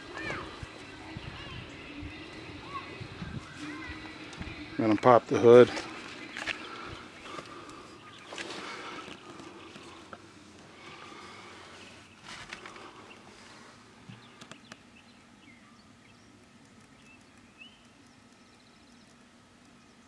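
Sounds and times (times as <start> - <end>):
rustling handling noise: 3.4 - 14.5
faint bird chirps: 14.1 - 20.0
sharp clicks: 14.4 - 14.8, 16.4 - 19.8.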